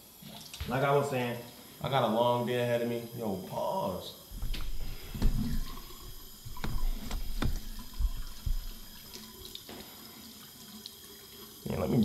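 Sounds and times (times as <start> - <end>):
sink tap running: 4.3 - 11.9
toiletry bottles clicking and knocking: 4.4 - 9.3.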